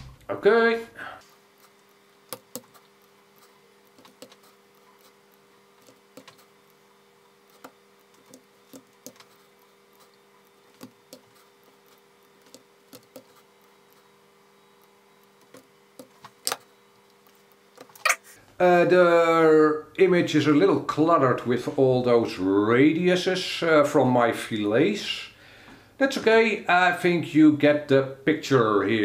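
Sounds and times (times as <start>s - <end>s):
faint electrical hum: 0.0s - 29.0s
keyboard keystrokes: 3.9s - 4.5s, 5.8s - 6.5s, 7.5s - 9.3s.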